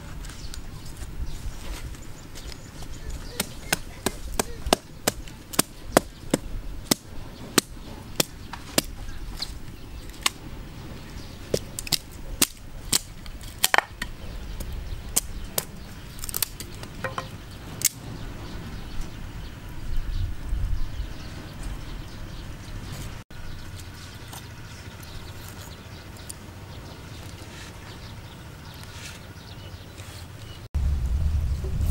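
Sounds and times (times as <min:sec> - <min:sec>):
hatchet chopping wood: 0:03.4 - 0:09.0, 0:11.5 - 0:14.2, 0:15.2 - 0:18.0.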